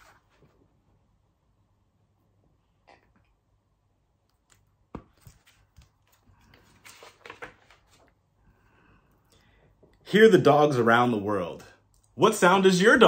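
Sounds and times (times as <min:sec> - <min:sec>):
book handling knocks and rustles: 0:04.9 - 0:08.1.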